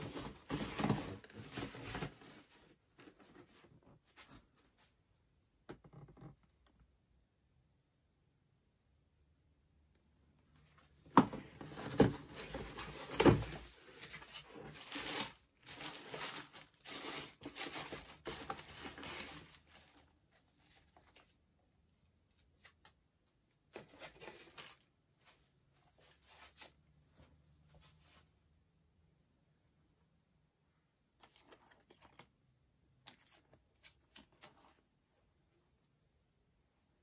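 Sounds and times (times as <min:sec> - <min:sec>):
cardboard box handled and opened: 0:00.0 - 0:04.4, 0:11.0 - 0:21.3
tissue paper rustling: 0:11.7 - 0:21.3.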